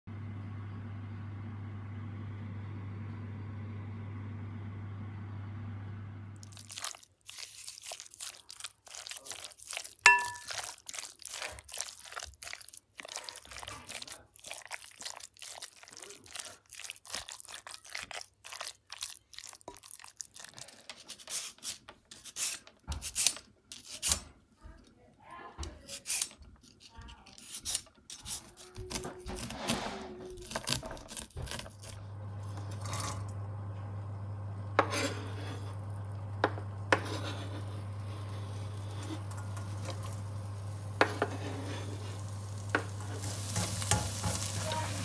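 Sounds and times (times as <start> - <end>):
utensil clicking and scraping in bowl: 6.5 - 24.2, 25.7 - 29.6, 42.7 - 44.8
steady low hum: 31.8 - 45.0.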